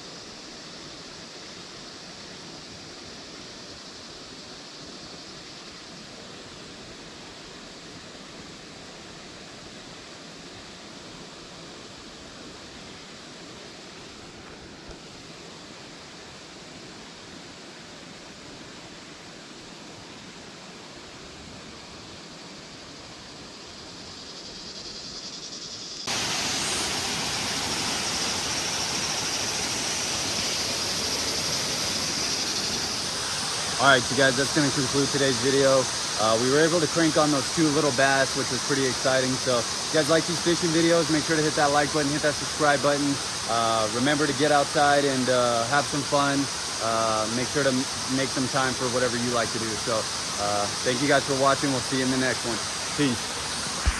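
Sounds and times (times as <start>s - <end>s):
faint outdoor hiss: 0.0s - 53.9s
water rushing down dam onto rocks: 26.1s - 53.9s.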